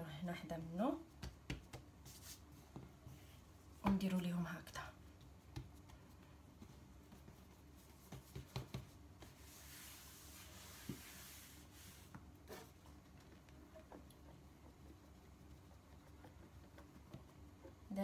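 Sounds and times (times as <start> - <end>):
soft rubbing hiss: 0.0 - 17.8
soft taps on dough: 1.1 - 1.9, 3.8 - 4.1, 5.2 - 7.4, 8.0 - 9.4.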